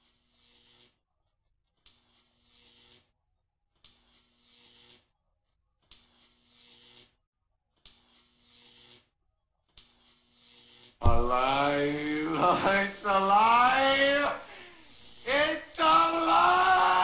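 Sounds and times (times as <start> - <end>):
electric zapping click and hiss: 0.4 - 0.9, 1.9 - 3.0, 3.8 - 5.0, 5.9 - 7.1, 7.8 - 9.1, 9.8 - 11.0, 11.9 - 13.4, 14.0 - 17.0
man singing held tones: 11.0 - 17.0.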